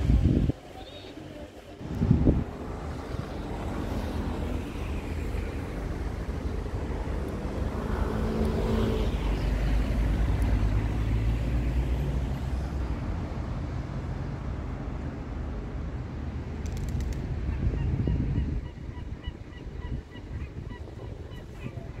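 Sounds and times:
motor vehicle passing: 0:01.9 - 0:12.9.

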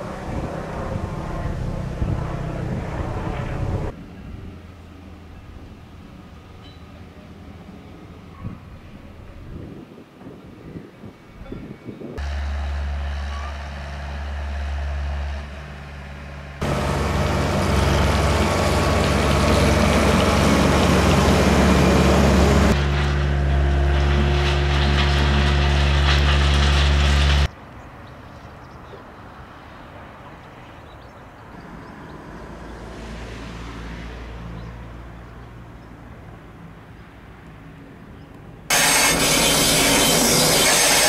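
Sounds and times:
faint outdoor background: 0:00.0 - 0:41.0
excavator diesel engine running: 0:12.2 - 0:27.5, 0:38.7 - 0:41.0
harsh rushing noise: 0:38.7 - 0:41.0.

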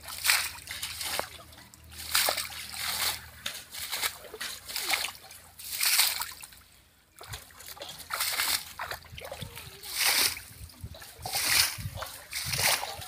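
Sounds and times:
muddy water splashing: 0:00.0 - 0:13.0.

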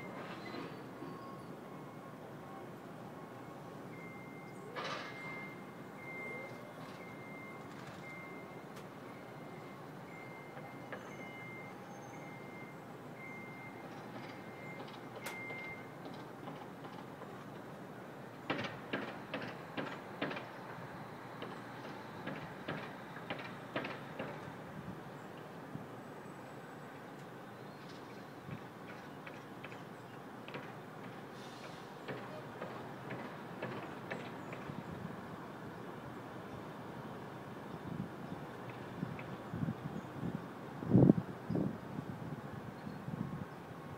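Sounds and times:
reversing alarm beeping: 0:00.0 - 0:02.2, 0:03.4 - 0:16.0
steady city hum: 0:00.0 - 0:43.9.

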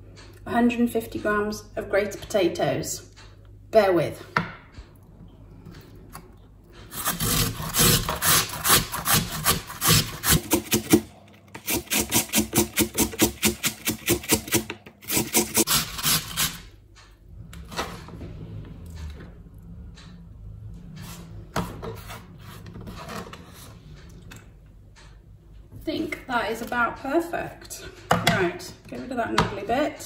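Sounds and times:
potato rasping on metal grater: 0:06.9 - 0:11.0, 0:11.6 - 0:16.6.

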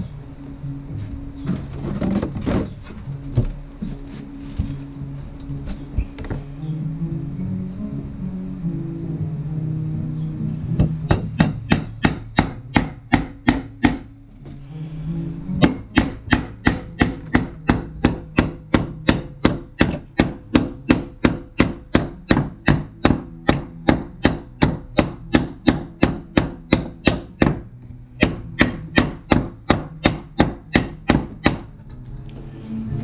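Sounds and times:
hammer striking nail into wood: 0:10.8 - 0:14.1, 0:15.6 - 0:31.7.

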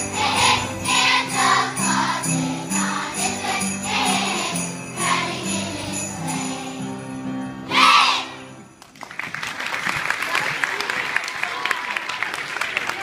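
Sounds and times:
children's choir singing: 0:00.0 - 0:08.6
instrumental accompaniment: 0:00.0 - 0:08.8
sleigh bells jingling: 0:00.0 - 0:08.8.

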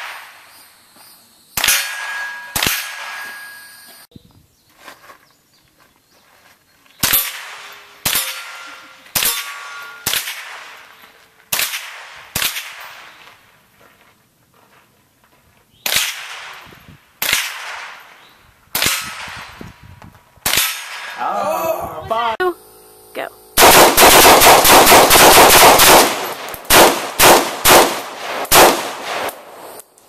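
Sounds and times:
rifle shots: 0:01.6 - 0:03.6, 0:07.0 - 0:13.2, 0:15.8 - 0:18.1, 0:18.7 - 0:19.6, 0:20.4 - 0:21.2, 0:23.6 - 0:29.6
ring of steel plate target: 0:01.6 - 0:04.1, 0:07.0 - 0:11.0.

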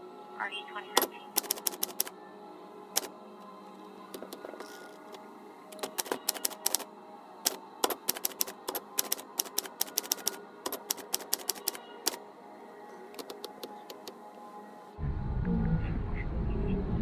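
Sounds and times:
manual typewriter typing: 0:01.0 - 0:02.1, 0:05.7 - 0:12.2, 0:13.2 - 0:14.1.

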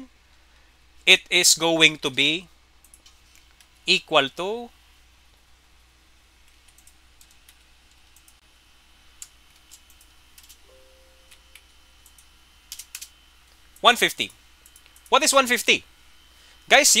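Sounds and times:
computer keyboard keystrokes: 0:06.4 - 0:08.4, 0:09.2 - 0:10.7, 0:11.3 - 0:13.1
short faint chime: 0:10.7 - 0:11.3.

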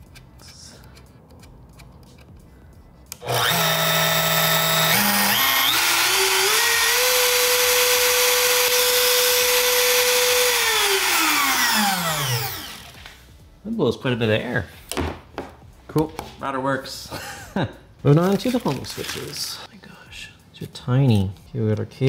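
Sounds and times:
router motor whine: 0:03.2 - 0:13.0.

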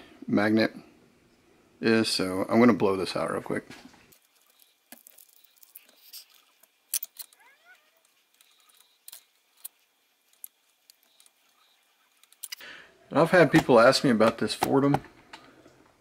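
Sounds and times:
small tools clicking and knocking: 0:04.2 - 0:12.6.

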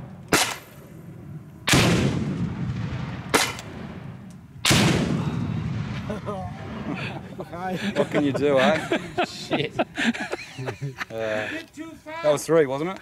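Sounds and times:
grenade launcher shots: 0:00.3 - 0:00.8, 0:01.7 - 0:06.0
grenade explosions: 0:01.7 - 0:07.1.

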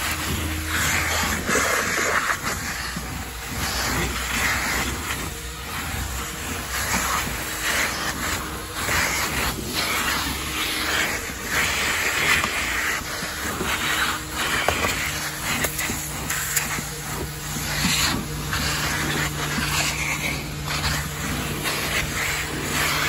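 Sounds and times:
vacuum hose sucking debris: 0:00.0 - 0:23.0.

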